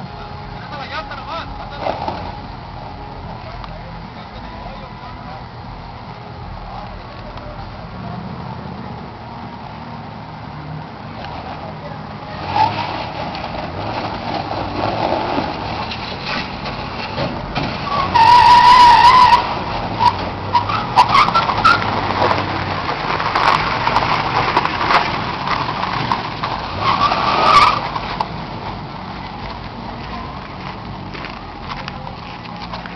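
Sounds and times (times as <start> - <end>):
tires scrabbling: 0.0 - 32.9
truck engine under hard load: 0.0 - 32.9
loud tire squeal: 12.4 - 28.3.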